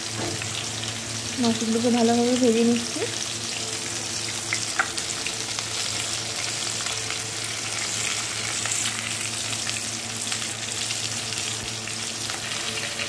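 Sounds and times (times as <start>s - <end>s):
fish frying in hot oil: 0.0s - 13.0s.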